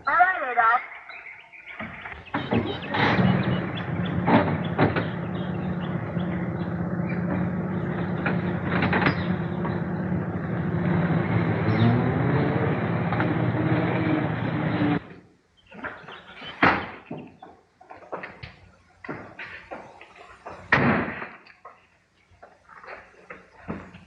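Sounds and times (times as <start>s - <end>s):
sharp engine knocks: 1.7s - 12.0s
car engine running: 2.3s - 15.1s.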